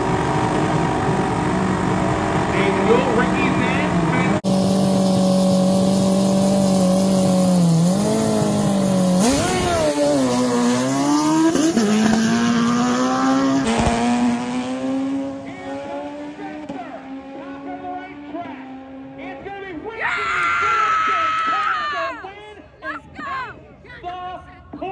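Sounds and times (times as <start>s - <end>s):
racing motorcycles revving and launching: 0.0s - 19.8s.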